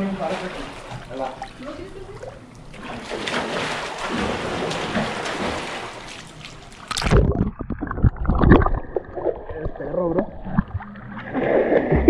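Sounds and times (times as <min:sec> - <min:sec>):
water splashing: 0:00.0 - 0:12.0
underwater thumps and rumbles: 0:06.9 - 0:12.0.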